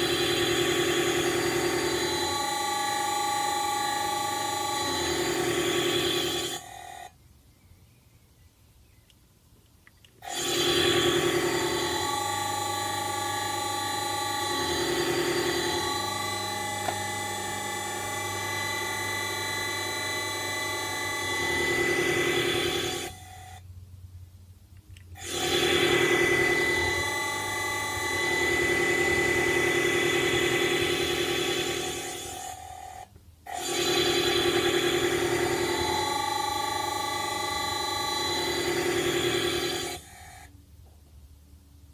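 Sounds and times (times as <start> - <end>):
electric motor whine: 0.0 - 7.1, 10.2 - 23.6, 25.2 - 40.5
low hum: 10.2 - 41.9.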